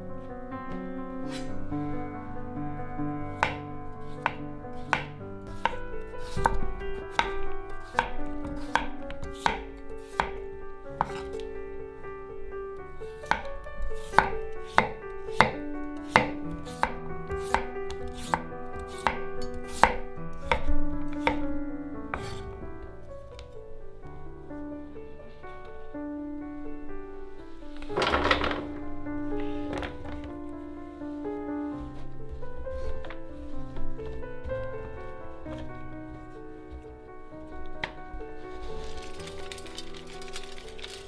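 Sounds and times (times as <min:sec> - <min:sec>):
knife slicing potatoes: 0:03.4 - 0:10.4, 0:11.0 - 0:11.4, 0:13.2 - 0:21.4
knife knocking on wooden board: 0:04.2 - 0:10.4, 0:11.0 - 0:11.4, 0:13.3 - 0:13.5.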